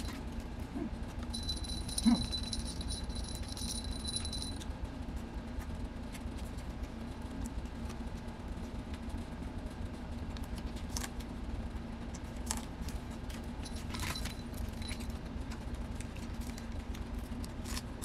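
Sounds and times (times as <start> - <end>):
low hum: 0.0 - 18.0
high ringing tone: 1.3 - 4.6.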